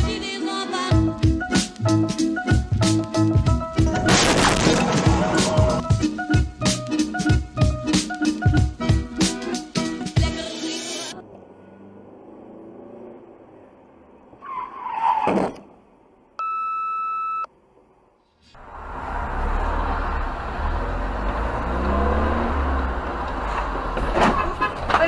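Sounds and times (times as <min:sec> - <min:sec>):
electronic beep: 0:16.4 - 0:17.5
car driving rumble and road noise: 0:17.6 - 0:25.0.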